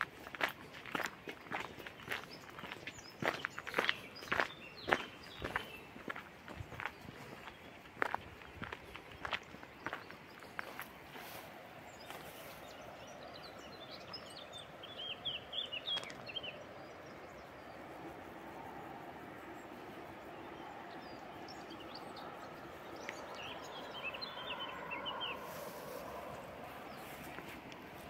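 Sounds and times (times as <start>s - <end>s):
outdoor background noise: 0.0s - 28.0s
bird chirping: 1.0s - 18.6s, 19.4s - 28.0s.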